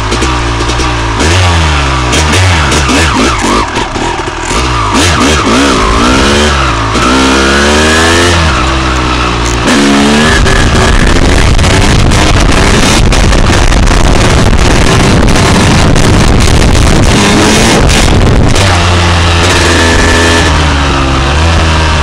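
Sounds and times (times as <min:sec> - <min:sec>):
two-stroke motorcycle engine revving: 0:00.0 - 0:22.0
wind rushing on microphone: 0:09.7 - 0:22.0.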